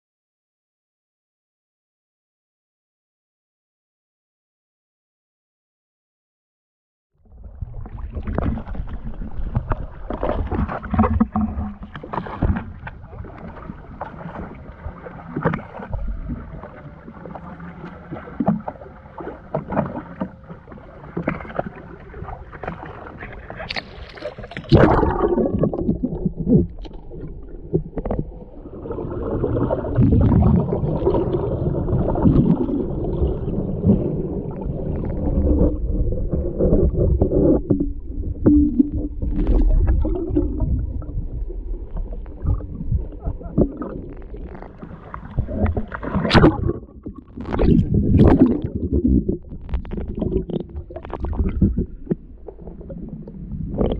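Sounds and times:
muffled water slapping and splashing: 7.2 - 53.9
underwater rumble with gurgling: 7.2 - 53.9
loud splash: 23.7 - 25.9.

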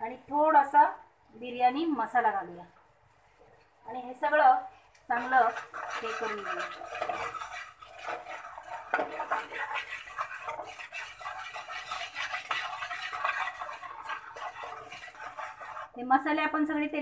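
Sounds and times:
spatula scraping a frying pan: 5.1 - 16.1.

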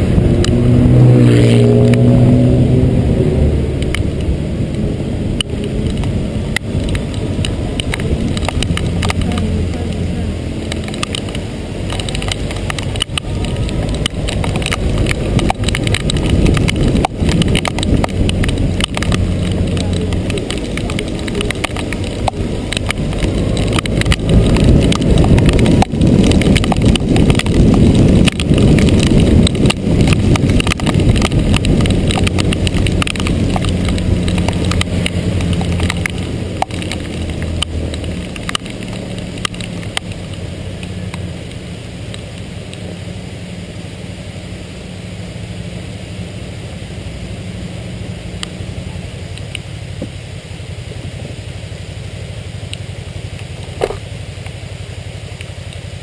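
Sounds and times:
wind on microphone: 0.0 - 41.4
motorcycle engine running: 0.0 - 56.0
sharp ticks: 5.4 - 42.8.

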